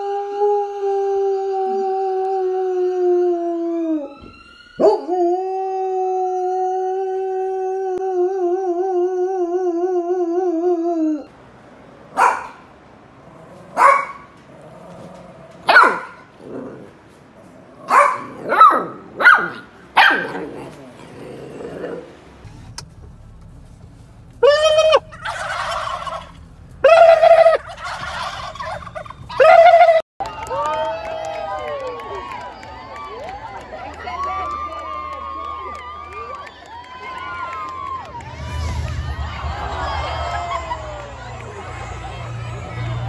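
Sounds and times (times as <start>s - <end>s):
dog howling: 0.0s - 11.3s
puppy barking: 12.2s - 12.7s, 13.7s - 14.4s, 15.7s - 16.3s, 17.8s - 20.7s.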